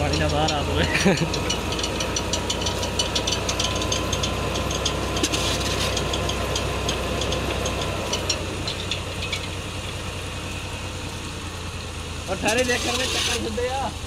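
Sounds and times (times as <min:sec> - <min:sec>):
tractor diesel engine running: 0:00.0 - 0:14.0.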